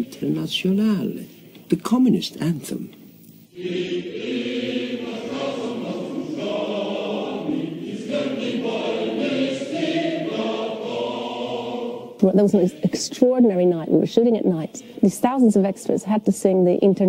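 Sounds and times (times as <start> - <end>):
crowd of men singing: 3.6 - 12.2.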